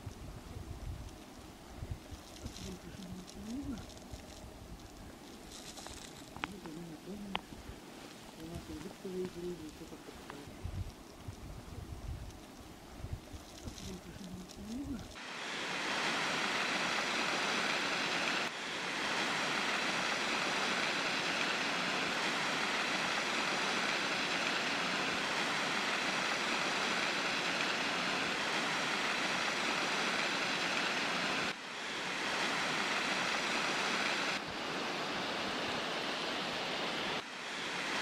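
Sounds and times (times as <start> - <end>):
waterfall rushing: 15.2 - 38.0.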